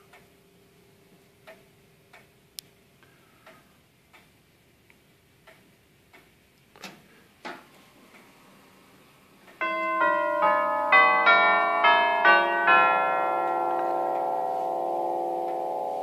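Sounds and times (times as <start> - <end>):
clock ticking: 1.4 - 2.8, 3.4 - 6.4, 9.4 - 12.8.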